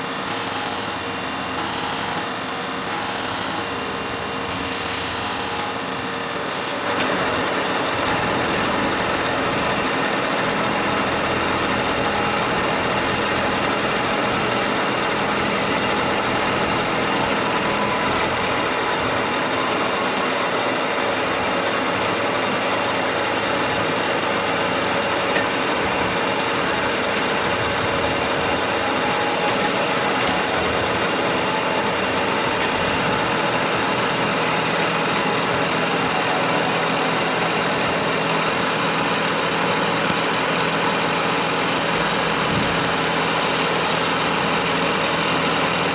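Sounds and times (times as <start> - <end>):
milling machine humming: 0.0 - 45.9.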